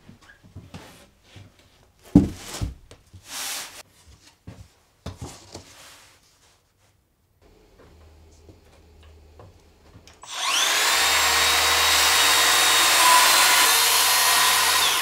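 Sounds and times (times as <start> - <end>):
wooden boards thumping on workbench: 2.1 - 2.8.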